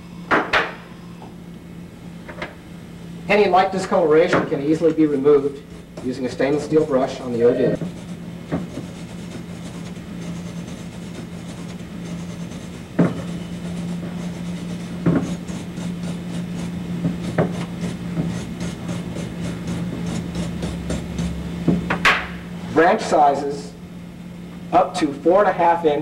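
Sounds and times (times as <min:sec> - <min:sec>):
wire brush scrubbing metal: 0:04.7 - 0:21.6.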